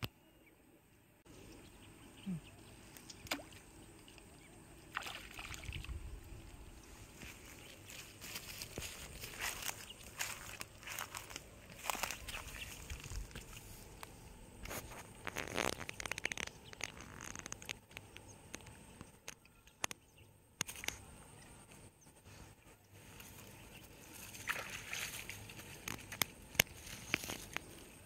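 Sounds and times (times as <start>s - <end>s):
small clicks: 14.0s - 20.0s.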